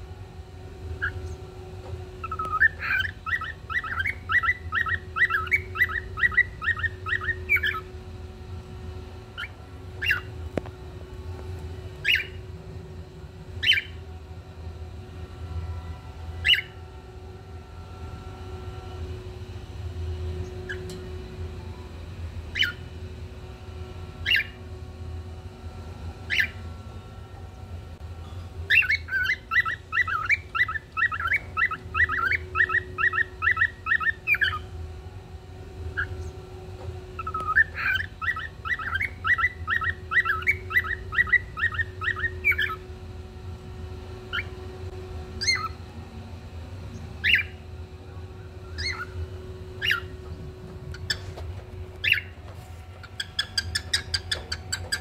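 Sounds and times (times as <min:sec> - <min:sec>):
steady low hum: 0:00.0 - 0:55.0
cockatiel chirping: 0:02.2 - 0:07.8, 0:09.4 - 0:10.3, 0:12.0 - 0:12.4, 0:13.6 - 0:14.0, 0:16.4 - 0:16.8, 0:22.5 - 0:22.8, 0:24.2 - 0:24.6, 0:26.3 - 0:26.6, 0:28.7 - 0:34.6, 0:37.2 - 0:42.8, 0:45.4 - 0:45.8, 0:47.2 - 0:47.6, 0:48.7 - 0:49.2, 0:49.8 - 0:50.2, 0:50.9 - 0:51.3, 0:52.0 - 0:52.3, 0:53.0 - 0:55.0.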